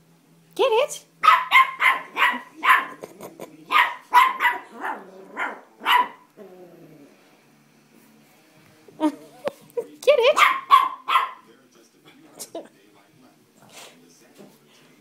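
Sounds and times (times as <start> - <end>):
puppy barking high-pitched: 1.2 - 3.0, 3.7 - 6.3, 10.2 - 11.5.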